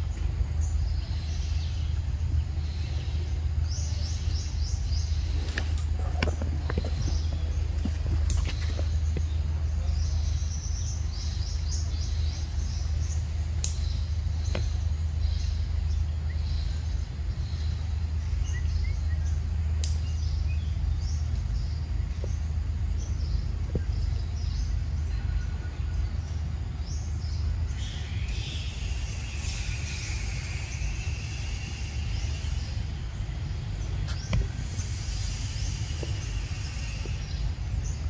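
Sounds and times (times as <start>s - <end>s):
birds chirping: 0.0s - 38.0s
steady low rumble: 0.0s - 38.0s
faint clicks: 13.6s - 13.9s, 19.8s - 20.1s
steady higher drone: 24.4s - 38.0s.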